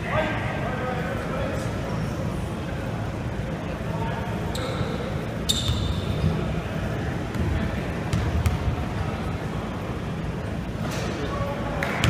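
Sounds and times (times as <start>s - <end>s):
low hall rumble: 0.0s - 12.0s
short high squeal: 4.5s - 6.2s.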